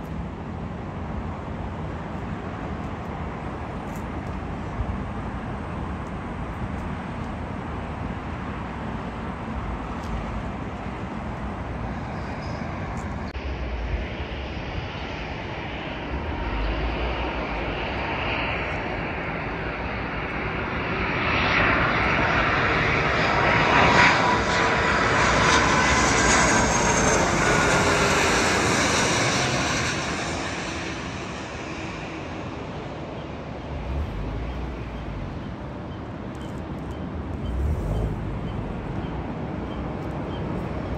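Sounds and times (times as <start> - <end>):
jet airliner passing over: 0.1 - 40.9.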